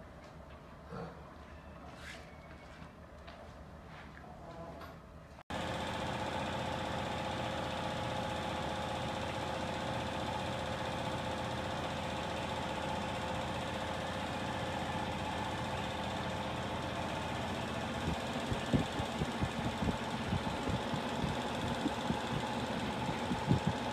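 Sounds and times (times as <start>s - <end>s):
workshop machine humming and whirring: 5.5s - 23.9s.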